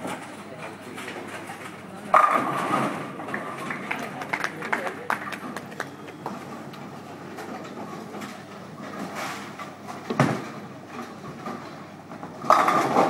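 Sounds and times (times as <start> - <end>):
bowling ball rolling: 2.0 - 4.1, 7.0 - 13.0
bowling ball crashing into pins: 2.1 - 3.7, 12.2 - 13.0.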